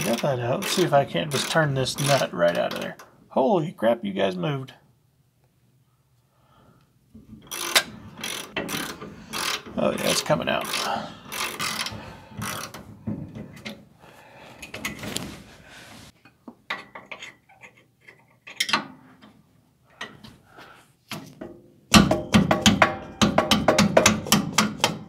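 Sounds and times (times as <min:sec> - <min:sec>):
ratchet wrench clicking: 0:00.1 - 0:02.9, 0:07.4 - 0:12.8.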